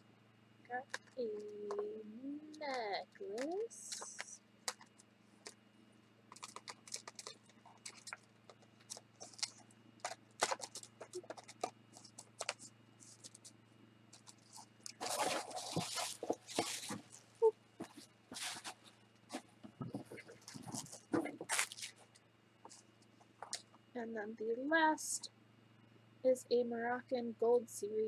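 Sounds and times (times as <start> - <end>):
packaging rustling and crinkling: 6.3 - 13.5, 14.2 - 22.1.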